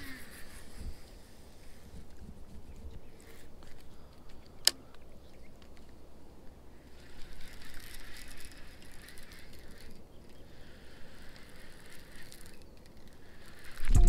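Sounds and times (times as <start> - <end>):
fishing reel whirring: 0.0 - 1.0, 6.7 - 14.0.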